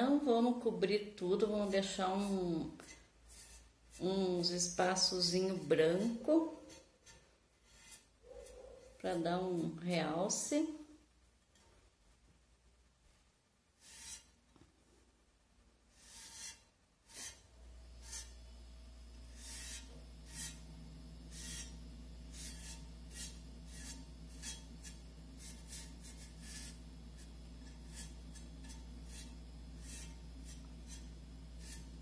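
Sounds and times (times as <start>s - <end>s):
low steady hum: 0.0s - 32.0s
rubbing strokes on vase: 1.2s - 10.5s, 13.8s - 14.4s, 15.9s - 32.0s.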